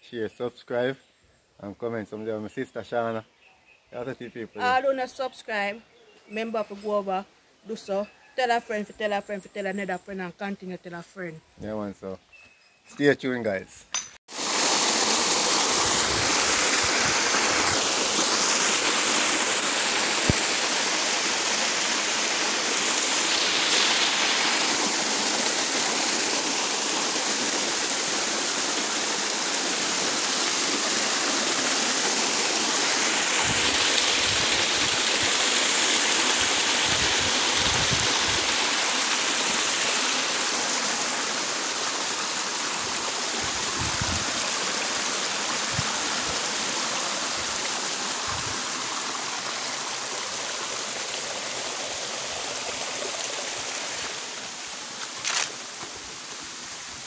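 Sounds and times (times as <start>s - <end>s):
river rushing over boulders: 14.3s - 57.0s.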